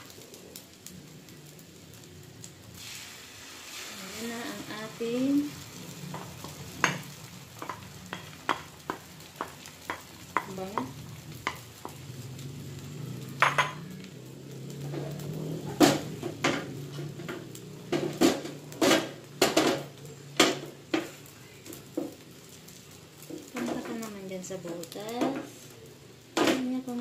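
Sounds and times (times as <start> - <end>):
egg sizzling in a pan: 0.0 - 27.0
spatula scraping and tapping pan: 6.1 - 12.0.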